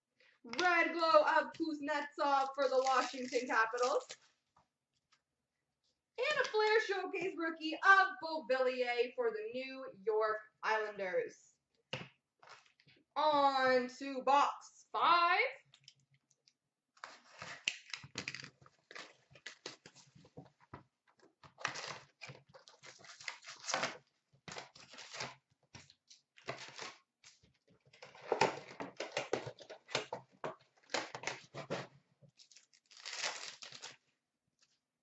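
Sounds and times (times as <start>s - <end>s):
card packs crinkling and tearing: 2.4s - 4.3s, 17.0s - 20.0s, 21.6s - 27.4s, 30.8s - 34.1s.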